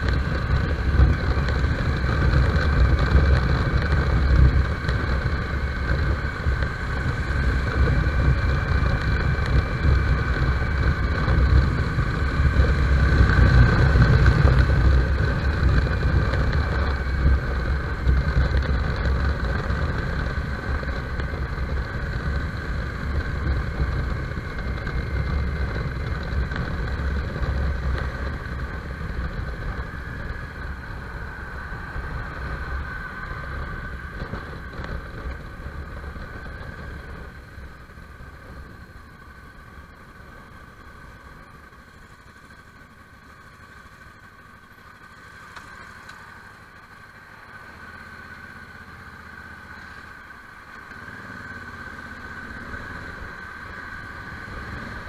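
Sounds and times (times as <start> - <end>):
wind rushing over microphone: 0.0 - 39.7
motorcycle engine running: 0.0 - 55.0.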